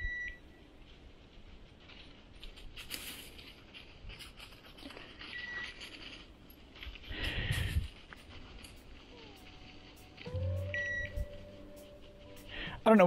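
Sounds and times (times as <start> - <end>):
dry leaves crunching underfoot: 1.7 - 12.7
short high beep: 10.6 - 11.4.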